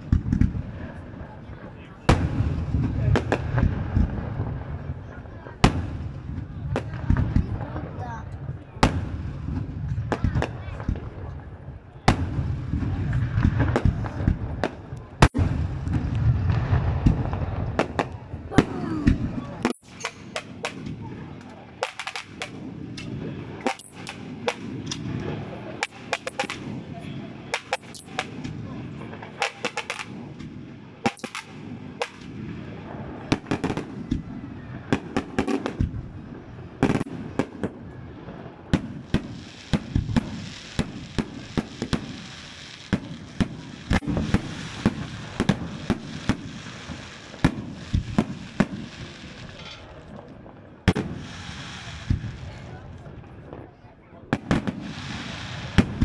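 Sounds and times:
crackling firework clusters: 0.0s - 56.0s
firework shells bursting: 13.4s - 26.9s, 27.5s - 28.6s, 29.2s - 32.4s, 38.8s - 50.0s.

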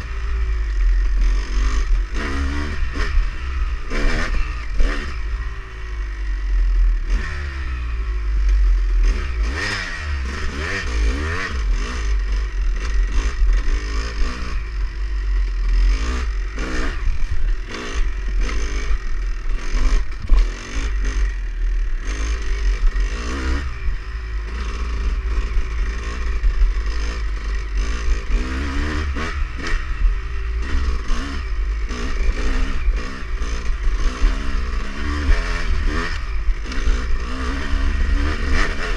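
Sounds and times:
dirt bike engine revving: 0.0s - 38.9s
bike rattling over bumps: 10.3s - 23.8s.

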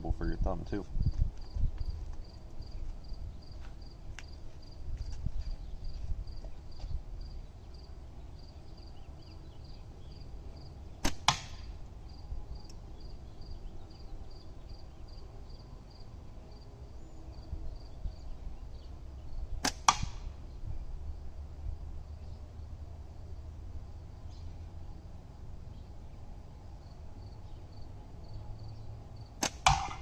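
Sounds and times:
insects chirping: 1.0s - 10.8s, 11.9s - 16.7s, 17.3s - 18.3s, 26.8s - 29.3s
sharp crack: 11.0s - 11.8s, 19.6s - 20.4s, 29.4s - 30.0s.

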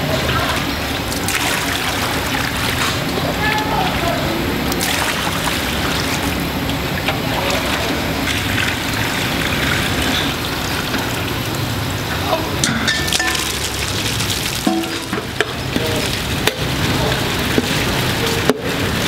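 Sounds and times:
broth pouring into a wok: 13.0s - 19.0s.

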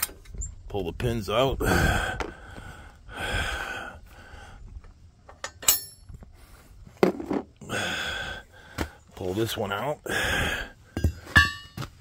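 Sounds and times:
ringing metal clink: 5.4s - 6.1s, 11.0s - 11.8s.

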